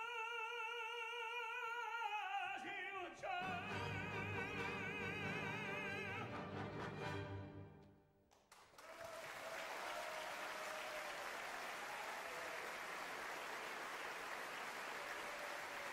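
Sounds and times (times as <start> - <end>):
audience applauding: 8.3 - 15.9.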